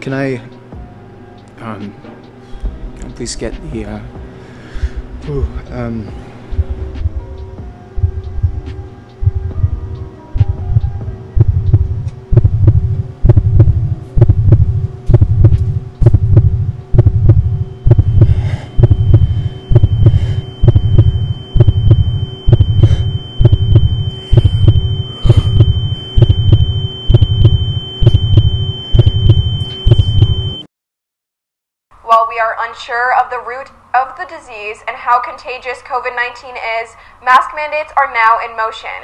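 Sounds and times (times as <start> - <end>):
droning hum: 2.6 - 30.6
low heartbeat thumps: 2.6 - 30.6
high ringing tone: 15.7 - 30.7.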